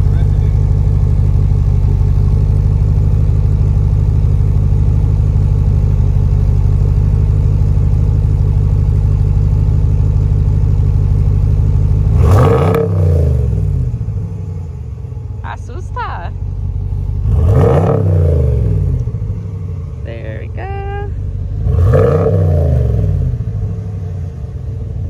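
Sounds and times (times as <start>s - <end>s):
truck engine idling rumble: 0.0s - 12.3s, 13.1s - 25.0s
engine revving: 11.8s - 14.6s, 17.0s - 25.0s.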